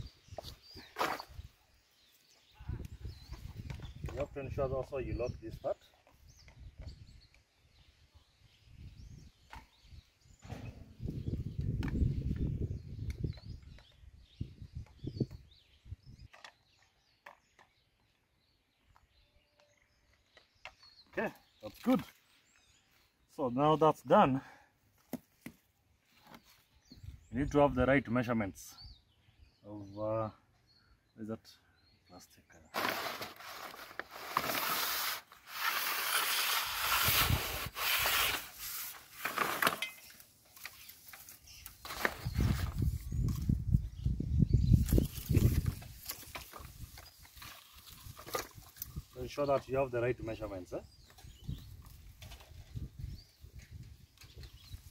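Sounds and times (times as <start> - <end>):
plastic pipe scraping: 32.8 - 40.0.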